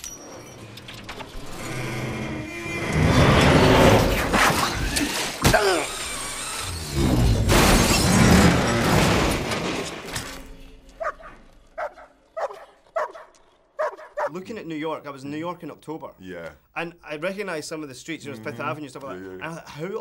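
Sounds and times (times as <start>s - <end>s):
crashing and shattering: 6.9s - 11.6s.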